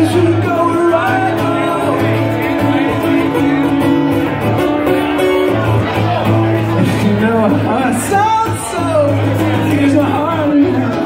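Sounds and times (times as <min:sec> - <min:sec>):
man singing into a microphone: 0:00.0 - 0:04.2, 0:06.7 - 0:11.0
acoustic guitar strumming: 0:00.0 - 0:11.0.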